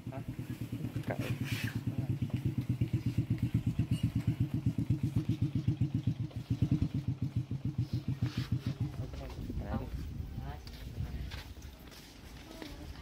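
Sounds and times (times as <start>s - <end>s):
small engine idling: 0.0s - 10.2s.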